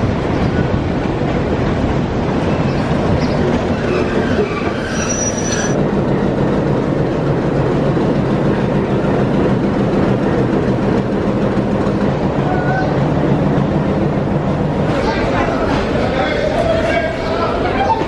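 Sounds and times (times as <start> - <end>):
diesel locomotive engine droning: 0.0 - 18.0
short high-pitched squeal: 4.6 - 5.8.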